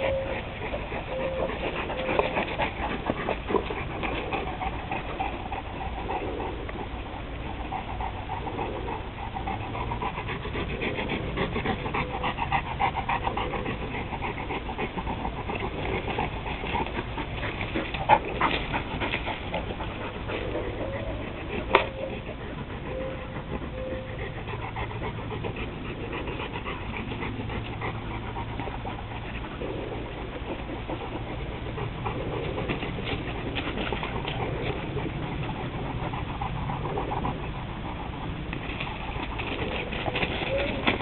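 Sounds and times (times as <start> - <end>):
dog panting: 0.0 - 41.0.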